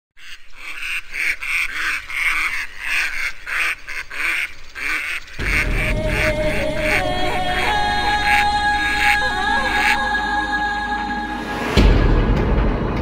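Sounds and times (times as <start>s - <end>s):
ducks quacking: 0.2s - 10.3s
music: 5.4s - 13.0s.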